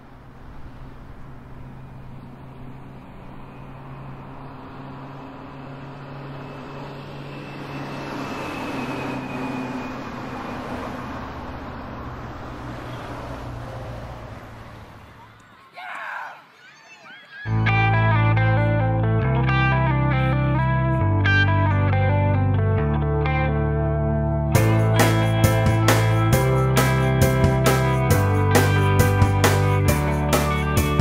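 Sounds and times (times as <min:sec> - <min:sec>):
faint high whine: 0:00.0 - 0:11.8
vehicle passing: 0:00.0 - 0:15.8, 0:17.5 - 0:31.0.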